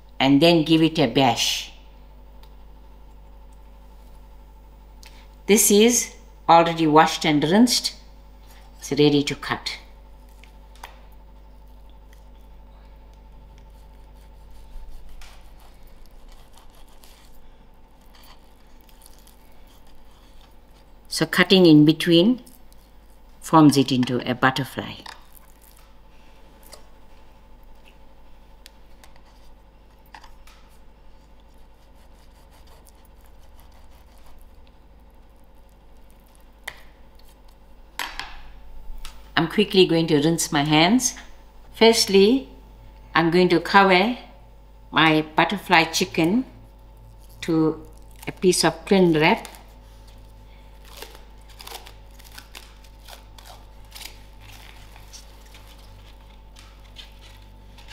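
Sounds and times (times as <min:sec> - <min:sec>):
steady hum: 0:00.0 - 0:57.9
knife cutting meat: 0:13.6 - 0:17.4, 0:31.4 - 0:34.6.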